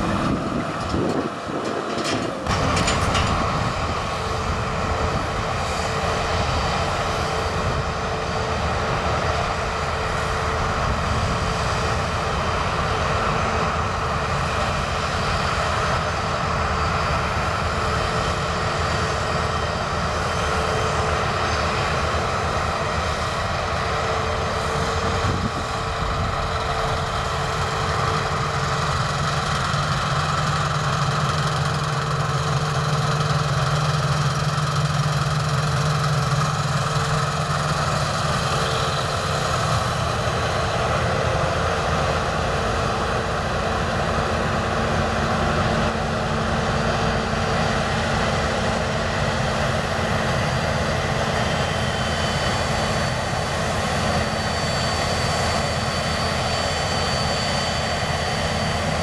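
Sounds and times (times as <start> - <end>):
threshing machinery whirring: 0.0 - 7.9
combine harvester engine drone: 0.0 - 59.0.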